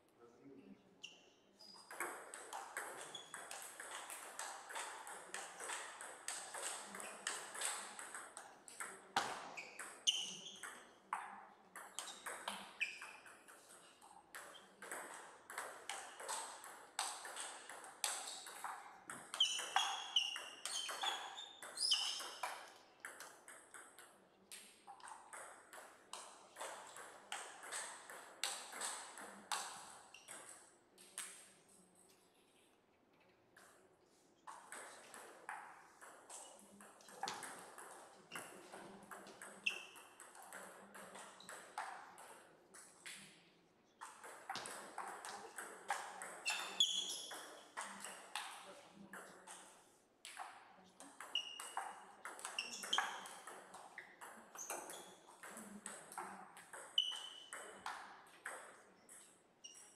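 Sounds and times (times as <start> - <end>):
short high squeaks: 46.5 - 47.3, 57.0 - 57.5.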